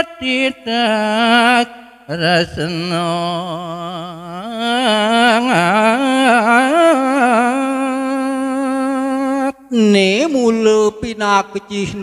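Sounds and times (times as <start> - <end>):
man singing into a microphone: 0.0 - 12.0.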